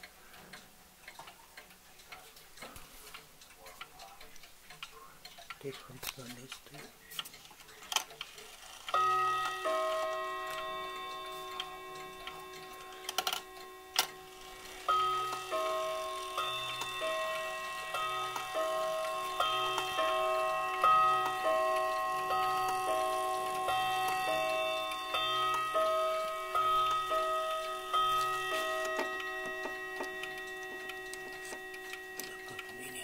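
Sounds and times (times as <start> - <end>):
wall clock chiming: 8.5 - 33.0.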